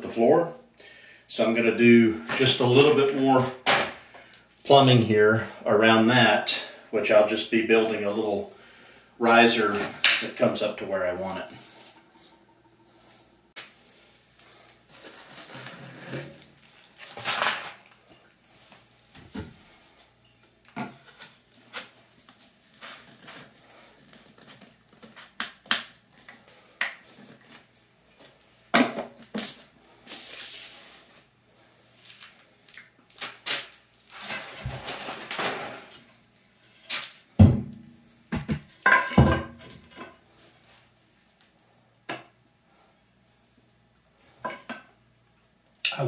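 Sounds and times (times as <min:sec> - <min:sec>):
pipe scraping and rattling: 0:14.9 - 0:18.3.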